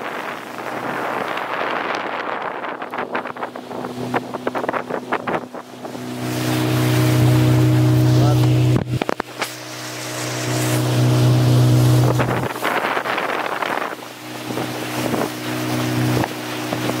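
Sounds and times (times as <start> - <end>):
rush of spray and wind: 0.0 - 17.0
speedboat engine humming: 0.0 - 17.0.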